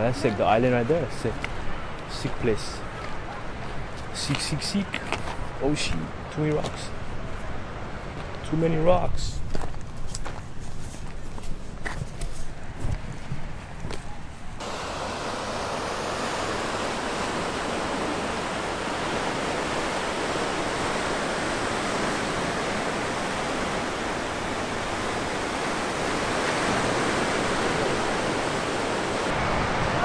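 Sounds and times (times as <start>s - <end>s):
surf breaking on rocks: 14.6s - 30.0s.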